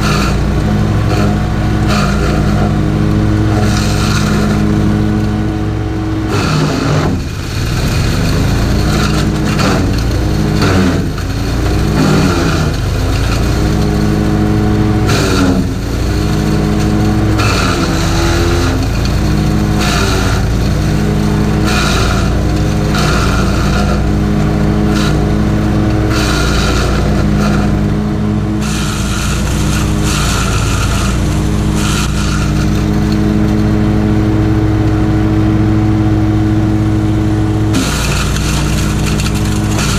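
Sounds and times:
wood chipper engine running: 0.0 - 39.9
branches being chipped: 6.3 - 27.9.

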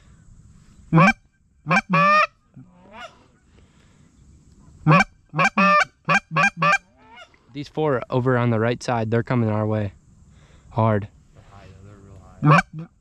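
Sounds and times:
goose honking and clucking: 0.9 - 3.3, 4.8 - 7.4, 12.4 - 12.9.

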